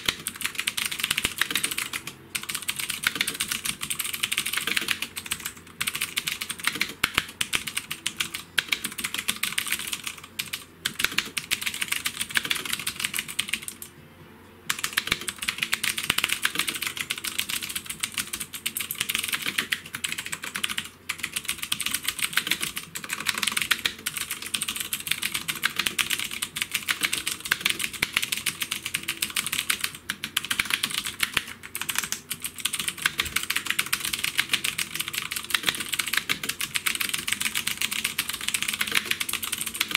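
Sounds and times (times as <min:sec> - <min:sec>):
fast typing on mechanical keyboard: 0:00.0 - 0:13.9, 0:14.7 - 0:39.9.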